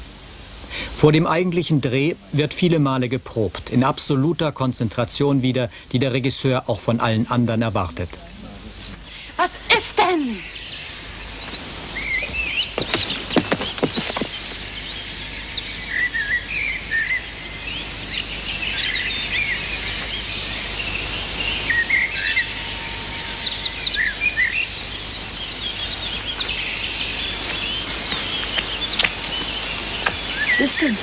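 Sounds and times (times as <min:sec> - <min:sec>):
birds chirping and whistling: 0:08.2 - 0:31.0.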